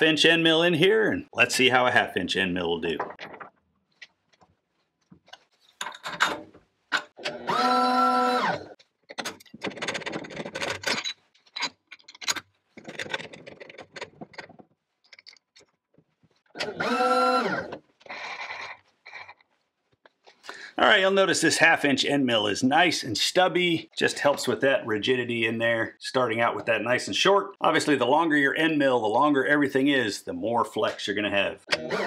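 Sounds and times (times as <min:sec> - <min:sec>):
steel parts clinking on vise: 0:09.1 - 0:14.5.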